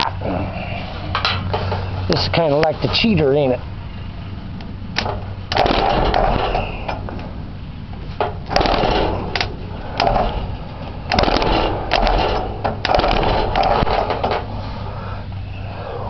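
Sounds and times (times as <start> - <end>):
sharp electrical clicks: 4.6 - 14.5
engine cranking: 4.9 - 16.0.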